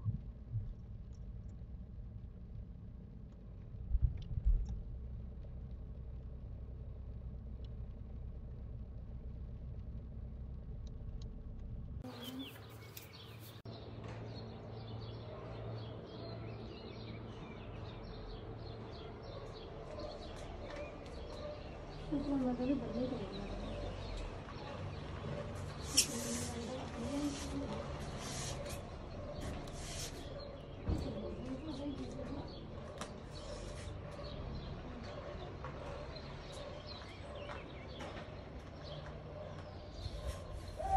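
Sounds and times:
car driving rumble inside cabin: 0.0s - 12.2s
birds chirping: 12.0s - 40.9s.

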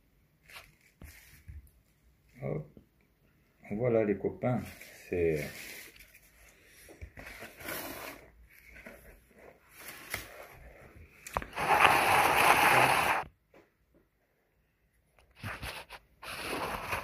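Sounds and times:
cardboard scrapes and rustles: 4.6s - 13.3s, 15.4s - 17.0s.

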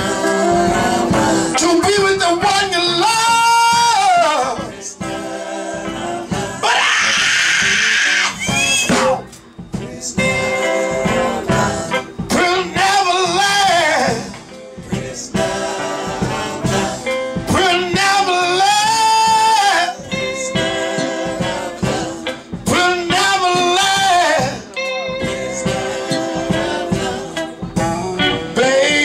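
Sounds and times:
live soul band music: 0.0s - 29.0s
saxophone: 4.0s - 13.0s, 18.8s - 29.0s.

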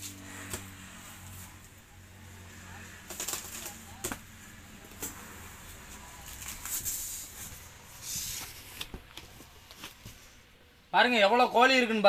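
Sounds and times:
cardboard flaps scraping and rustling: 5.8s - 10.4s.

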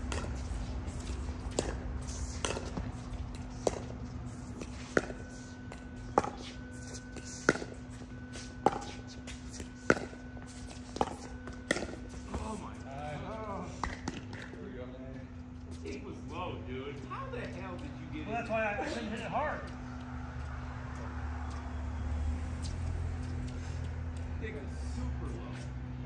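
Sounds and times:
low hum: 0.0s - 26.0s
paddles hitting plastic ball: 13.8s - 14.5s.

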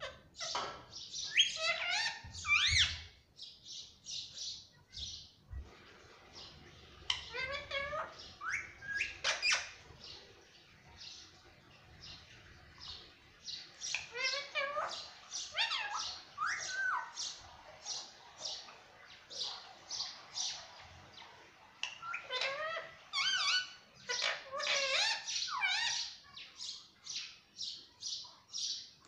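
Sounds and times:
parakeet chirping: 0.0s - 5.3s, 6.3s - 10.2s, 12.0s - 27.4s
parakeet whistled calls: 1.2s - 3.1s, 7.1s - 9.8s, 13.9s - 17.4s.

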